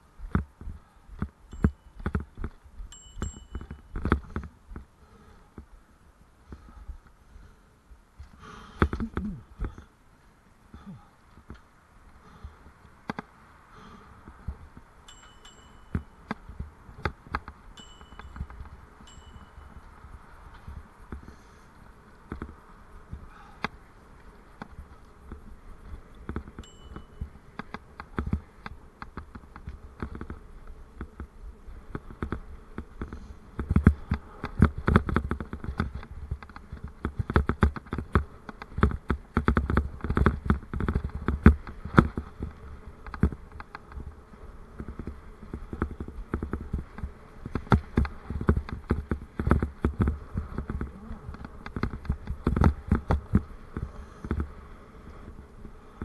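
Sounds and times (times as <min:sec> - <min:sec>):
bicycle rattling over path: 0:00.0 - 0:56.0.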